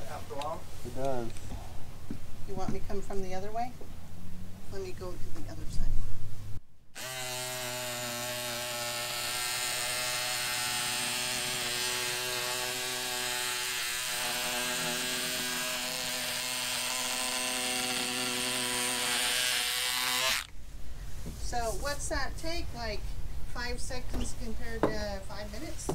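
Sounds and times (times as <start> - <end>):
electric cutter motor: 7.0 - 20.5.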